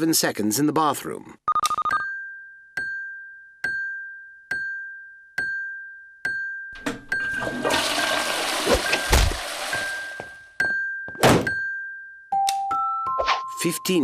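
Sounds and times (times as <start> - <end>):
toilet flushing: 6.8 - 10.3.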